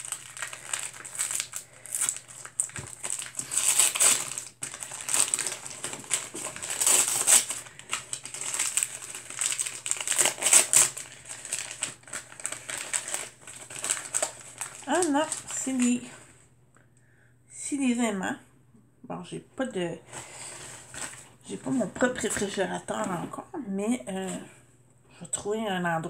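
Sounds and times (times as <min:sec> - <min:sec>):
gift wrapping crinkling: 0:00.0 - 0:16.3, 0:20.1 - 0:22.4.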